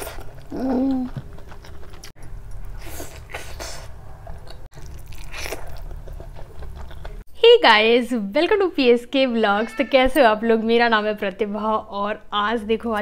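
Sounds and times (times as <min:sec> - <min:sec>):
wet chewing sounds: 0:00.0 - 0:07.3
person humming mmm: 0:00.5 - 0:01.2.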